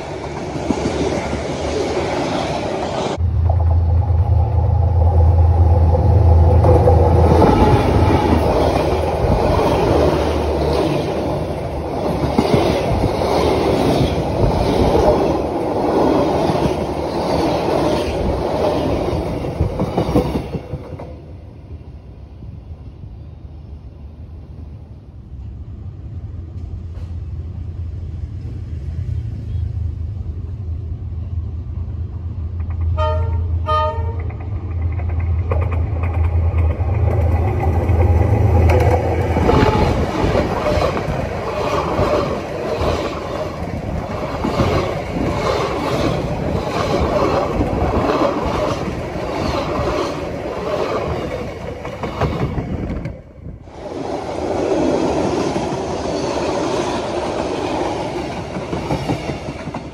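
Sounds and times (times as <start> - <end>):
diesel locomotive engine drone: 0.0 - 59.9
wheels clattering on rails: 32.4 - 53.2
train horn blasts: 33.0 - 34.4.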